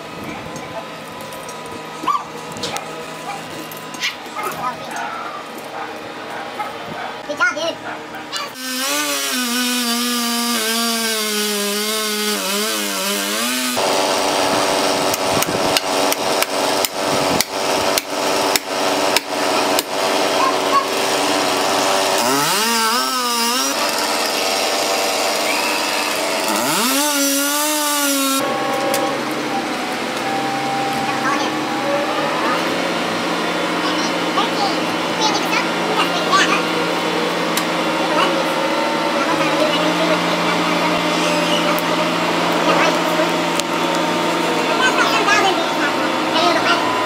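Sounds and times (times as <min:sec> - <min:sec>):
chainsaw cutting: 0:08.3 - 0:47.0
blows on felling wedge: 0:08.5 - 0:28.4.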